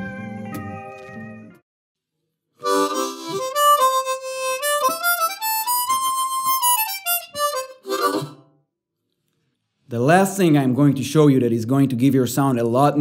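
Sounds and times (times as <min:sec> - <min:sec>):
harmonica melody: 0:02.6 - 0:08.6.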